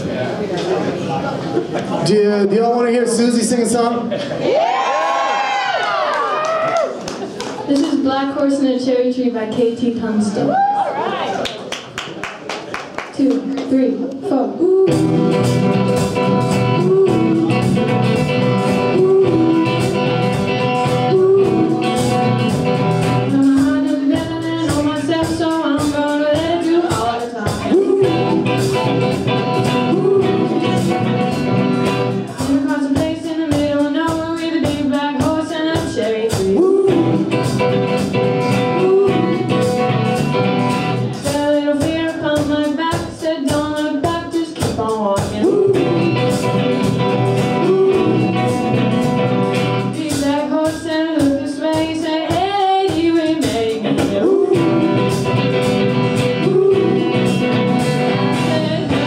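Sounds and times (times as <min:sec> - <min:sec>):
woman singing: 0:13.2 - 0:40.2, 0:41.0 - 0:59.0
electric guitar: 0:14.6 - 0:32.6, 0:36.0 - 0:41.3, 0:44.6 - 0:50.8, 0:53.4 - 0:59.0
bass guitar: 0:14.6 - 0:42.9, 0:44.6 - 0:50.4, 0:52.0 - 0:59.0
drum kit beat: 0:14.8 - 0:59.0.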